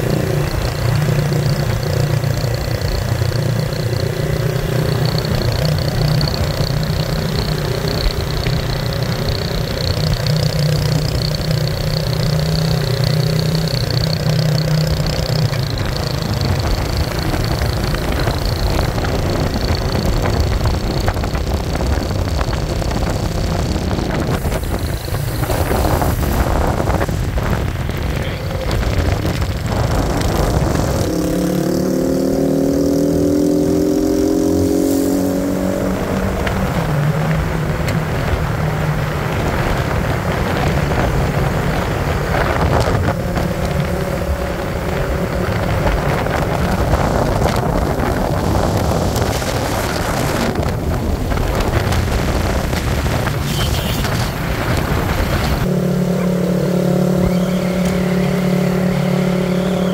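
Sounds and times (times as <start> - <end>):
vehicle engine hum: 0.0 - 59.9
wind rushing: 16.8 - 31.9.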